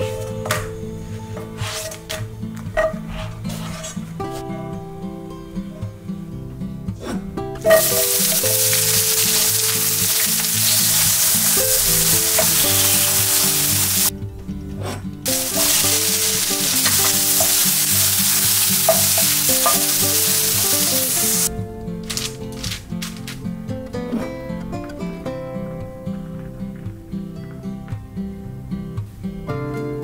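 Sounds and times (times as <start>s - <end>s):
vegetables sizzling in a frying pan: 7.7s - 14.1s, 15.3s - 21.5s.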